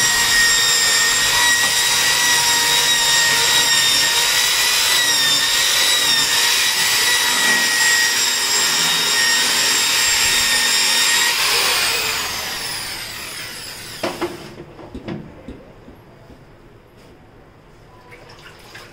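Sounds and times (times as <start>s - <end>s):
electric drill scrubbing basin: 0.0s - 14.6s
knocks: 14.0s - 16.4s.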